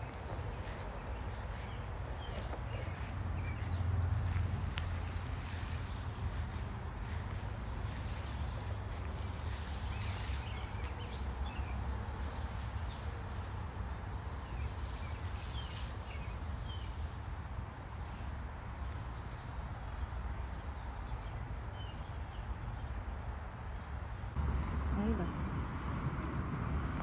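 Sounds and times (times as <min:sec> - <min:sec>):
wind rumble on microphone: 0:24.4 - 0:27.0.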